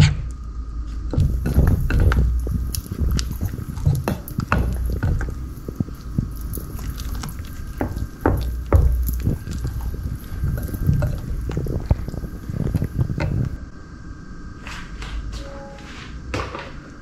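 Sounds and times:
batter squelching under spatula: 1.1s - 13.6s.

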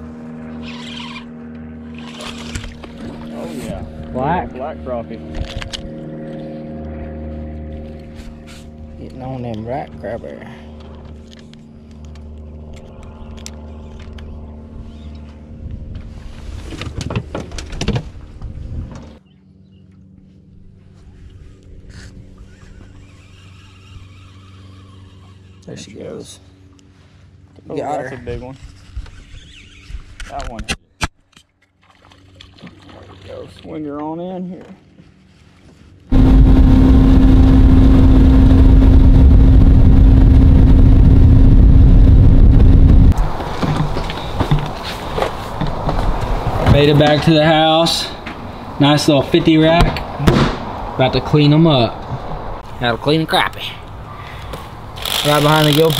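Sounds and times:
electric trolling motor hum: 0.0s - 16.2s, 18.7s - 30.2s, 36.1s - 43.3s, 54.8s - 55.9s.

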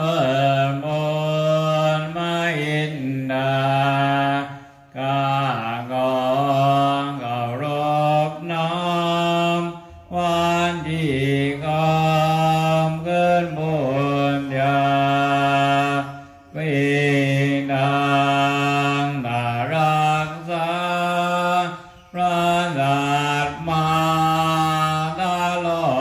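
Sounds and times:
man chanting: 0.0s - 26.0s
breath: 4.5s - 4.9s, 16.1s - 16.5s.

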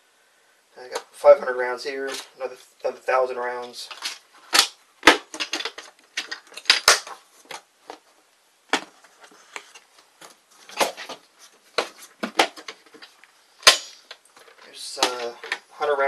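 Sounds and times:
plastic cans knocking and clacking: 3.9s - 8.0s, 11.8s - 15.7s.

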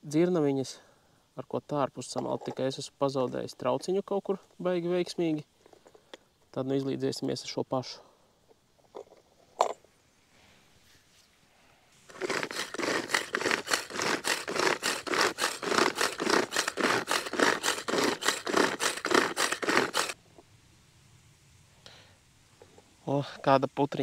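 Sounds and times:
bait grinder scraping: 12.1s - 20.2s.

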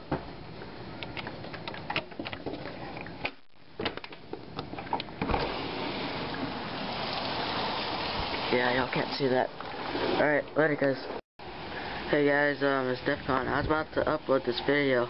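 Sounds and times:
heavy rain hissing: 5.4s - 9.2s, 11.4s - 13.0s.

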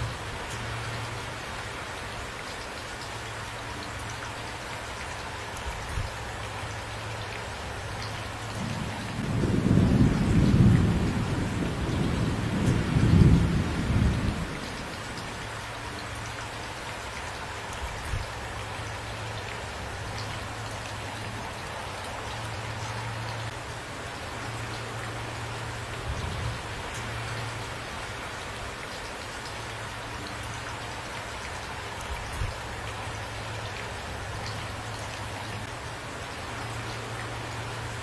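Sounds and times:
steady rain: 0.0s - 38.0s
thunder rumbling: 8.6s - 15.2s.

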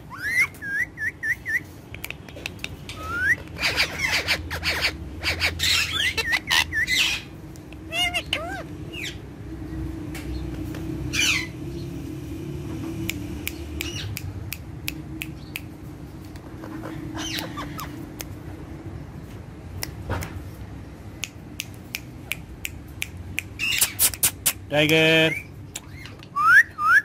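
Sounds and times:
parakeets squawking: 0.1s - 0.8s, 2.8s - 9.3s, 11.0s - 12.0s, 16.4s - 18.2s, 23.6s - 26.4s
sharp clicks: 1.9s - 3.6s.

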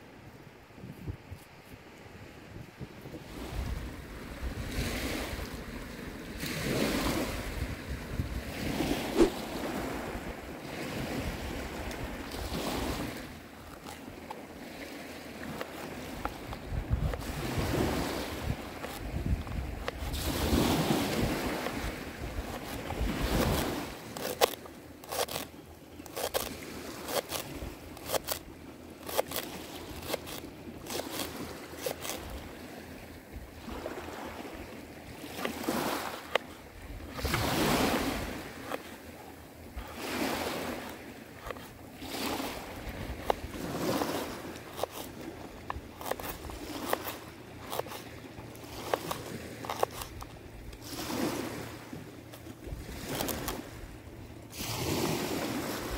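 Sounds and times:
surf washing over pebbles: 8.4s - 13.9s, 14.5s - 25.5s, 33.6s - 39.1s, 50.8s - 53.8s, 54.5s - 55.9s.

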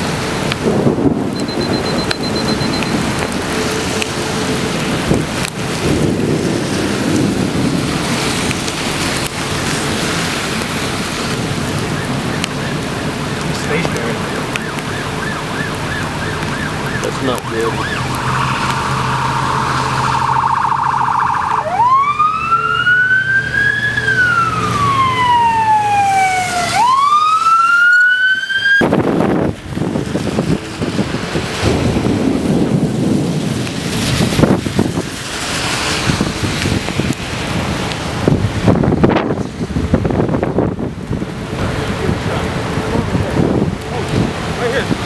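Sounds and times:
rain: 0.0s - 45.0s
wind: 0.0s - 45.0s
emergency vehicle siren: 1.3s - 5.5s, 11.0s - 28.9s.

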